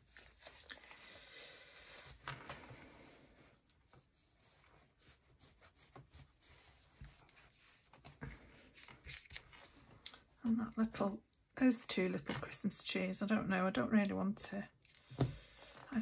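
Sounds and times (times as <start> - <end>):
cloth wiping over paper card: 2.8 - 9.3.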